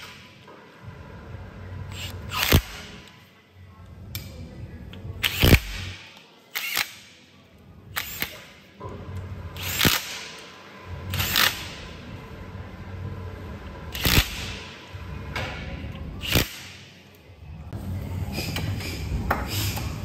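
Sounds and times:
low steady hum: 0.0 - 6.0, 8.8 - 16.3.

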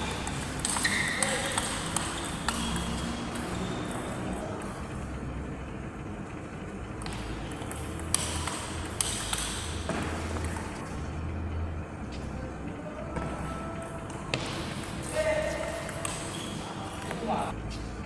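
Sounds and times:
table tennis ball hits: 0.0 - 4.7, 7.0 - 10.8
low steady hum: 0.0 - 18.0.

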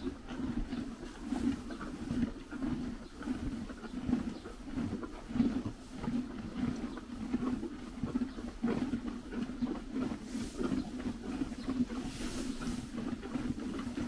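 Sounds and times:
horses chewing hay: 0.0 - 14.0
hay rustling: 10.3 - 10.6, 12.0 - 12.9.

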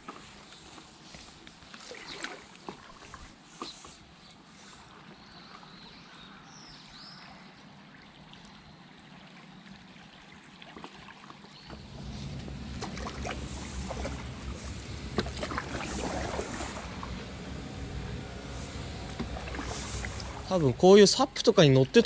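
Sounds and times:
paddle splashing in water: 0.0 - 5.8, 7.1 - 22.0
water gurgling: 7.7 - 22.0
low rumble: 11.7 - 22.0.

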